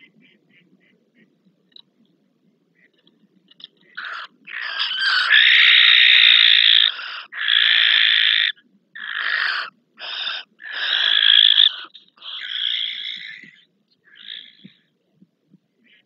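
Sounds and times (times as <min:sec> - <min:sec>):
barn owls screeching: 0:03.8 - 0:14.8.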